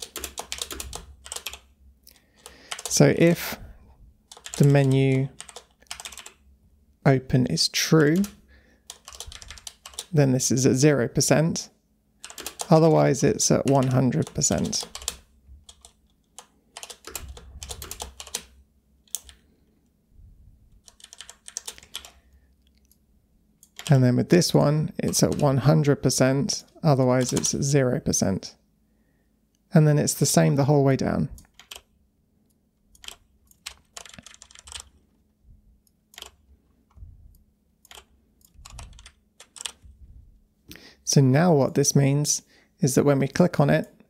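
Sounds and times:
computer keyboard typing: 0.0s - 1.7s, 2.4s - 3.2s, 4.3s - 6.4s, 8.0s - 10.2s, 12.2s - 19.4s, 20.8s - 22.2s, 23.6s - 24.0s, 25.0s - 25.7s, 27.1s - 27.6s, 31.4s - 31.9s, 32.9s - 35.0s, 36.1s - 37.0s, 37.8s - 39.8s.

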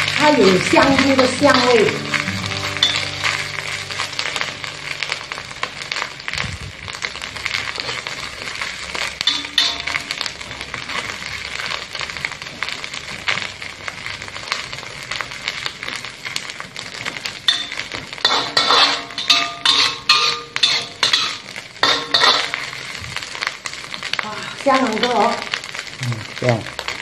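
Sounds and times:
frying sizzle: 0.0s - 27.0s
metal spatula scraping a wok: 2.1s - 5.1s, 7.0s - 11.8s, 17.4s - 23.0s.

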